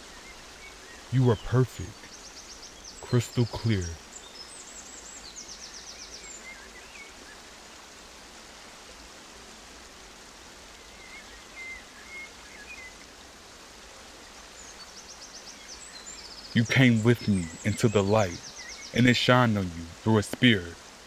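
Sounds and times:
outdoor ambient hiss: 0.0s - 21.0s
bird chirps: 14.6s - 20.8s
high bird trill: 15.5s - 20.8s.

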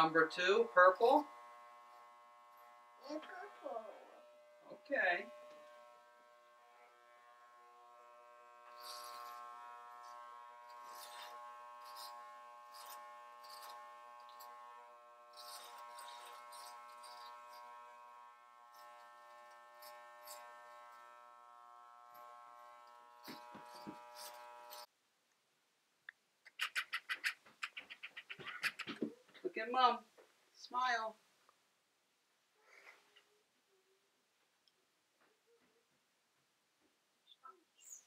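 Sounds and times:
blades crackling through hair: 0.0s - 24.9s, 26.5s - 30.0s
electric hair clippers buzzing: 0.0s - 24.9s.

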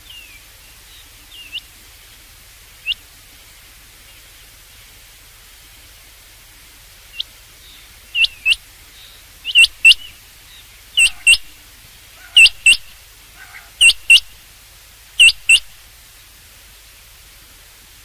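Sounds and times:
quail calling: 8.2s - 8.6s, 9.5s - 14.4s, 15.2s - 15.8s.

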